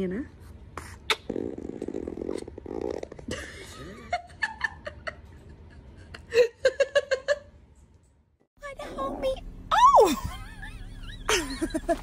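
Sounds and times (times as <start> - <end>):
adult laughing in rapid bursts: 10.1 - 12.0.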